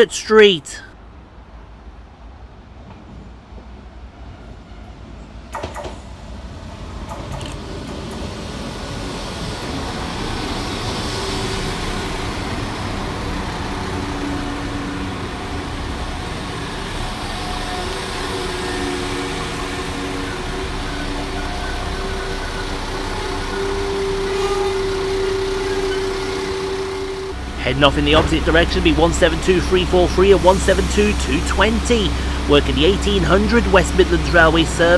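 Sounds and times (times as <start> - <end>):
diesel train engine: 0.0 - 34.9
wheels on rails: 5.4 - 34.9
constant hum: 11.7 - 34.9.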